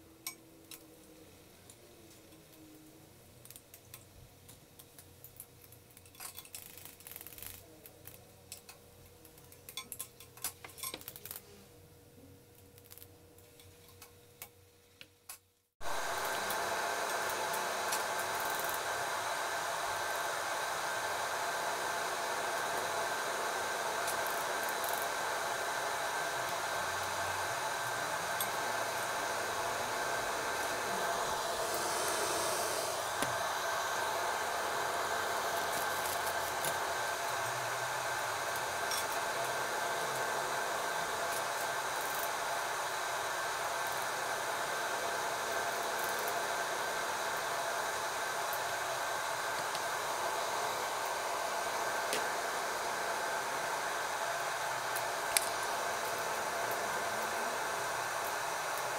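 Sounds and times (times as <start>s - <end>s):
hot oil sizzling: 15.8s - 58.9s.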